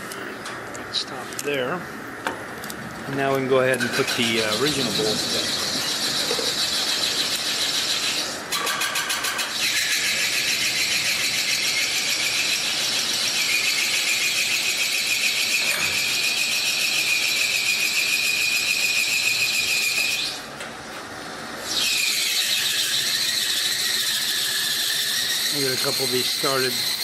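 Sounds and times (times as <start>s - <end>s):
high-pitched mechanical squeal: 3.8s - 20.5s, 21.6s - 27.0s.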